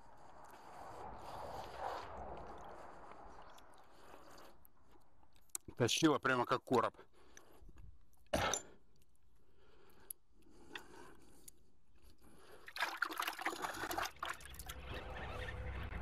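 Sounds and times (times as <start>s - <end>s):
water splashing in a bucket: 12.6s - 14.8s.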